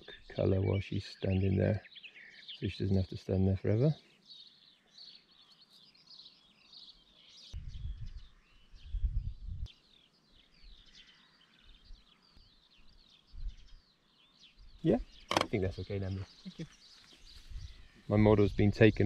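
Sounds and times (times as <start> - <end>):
birds chirping and warbling: 0.0 - 19.0
wind gusts on microphone: 7.6 - 9.7, 17.2 - 19.0.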